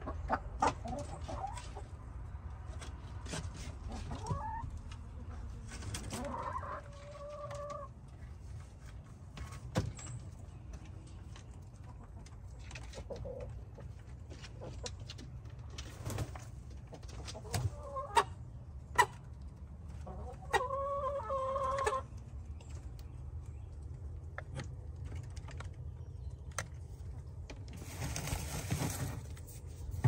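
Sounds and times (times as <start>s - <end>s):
hens clucking: 0.0s - 8.9s, 11.4s - 24.8s.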